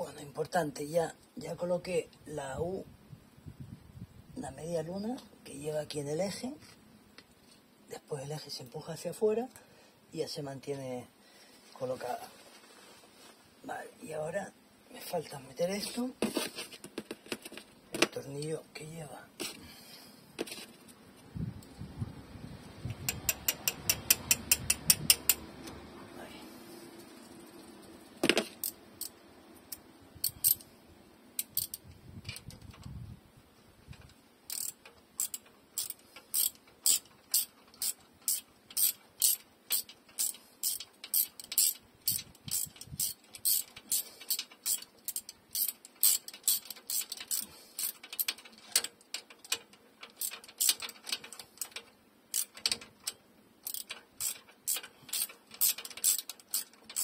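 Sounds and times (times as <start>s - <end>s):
ratchet wrench clicking: 22.9s - 25.4s, 28.4s - 30.7s, 31.4s - 32.5s, 34.5s - 57.0s.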